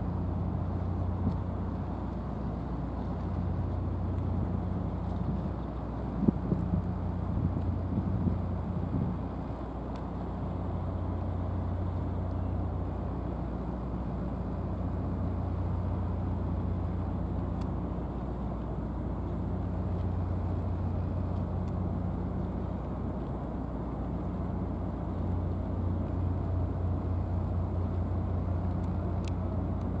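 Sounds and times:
low engine drone: 0.0s - 30.0s
faint clicks: 28.6s - 30.0s.

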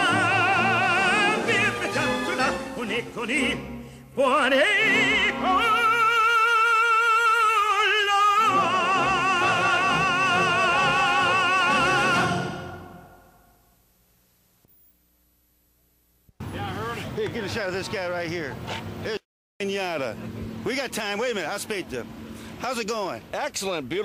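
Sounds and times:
operatic voice singing: 0.0s - 13.2s
musical backing: 0.0s - 13.3s.

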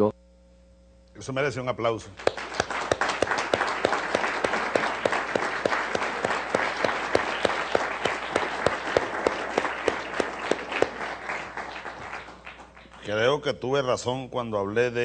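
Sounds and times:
loud close hand claps: 2.2s - 13.1s
audience applauding: 2.2s - 13.3s.

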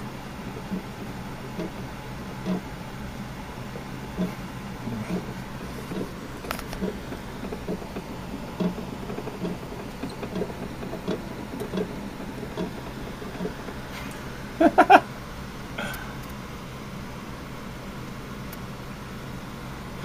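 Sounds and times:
steady low hum: 0.0s - 20.0s
mouse gnawing and scratching: 5.1s - 14.1s.

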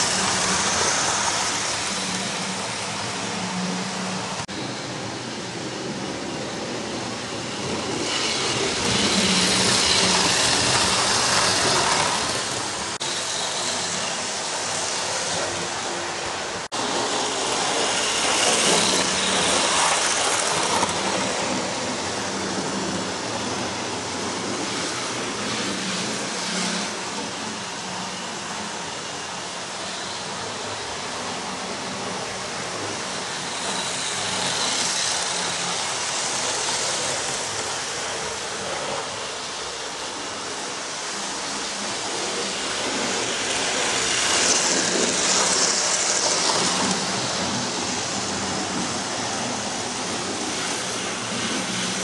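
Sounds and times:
model trains whirring and rattling: 0.0s - 52.0s.

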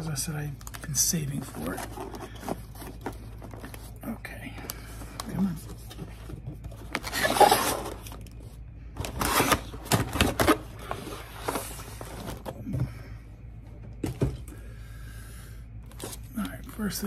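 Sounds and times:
cardboard scraping and rustling: 0.8s - 4.0s, 5.4s - 12.6s.

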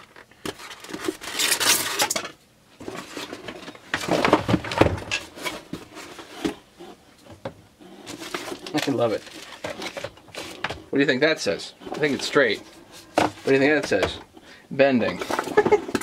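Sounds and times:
cardboard and foam rustling: 2.8s - 7.0s, 7.9s - 14.2s.

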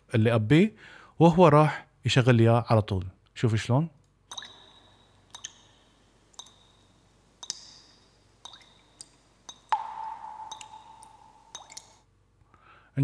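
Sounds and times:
water drips plinking into water: 4.3s - 12.1s
deep water plop: 7.4s - 12.0s.

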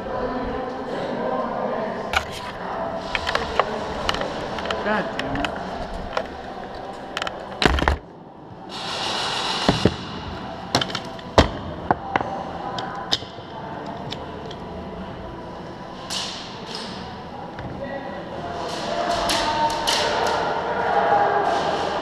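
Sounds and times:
hiss: 8.7s - 10.0s.

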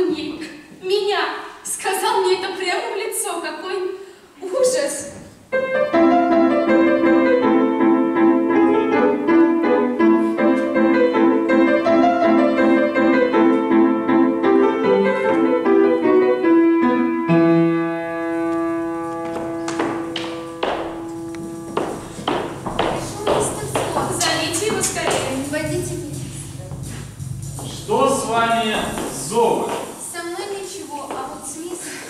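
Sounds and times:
grand piano playing: 5.4s - 30.4s.

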